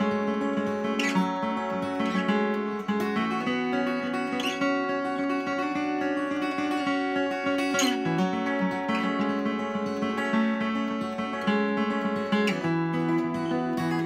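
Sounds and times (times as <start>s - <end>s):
fingerpicked acoustic guitar: 0.0s - 14.0s.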